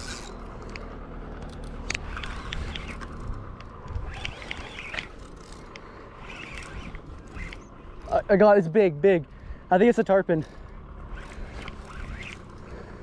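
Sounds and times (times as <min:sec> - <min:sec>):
fishing reel cranking: 0:00.0 - 0:00.8, 0:01.4 - 0:08.3, 0:10.4 - 0:13.0
reel clicks: 0:00.0 - 0:08.1, 0:11.1 - 0:12.7.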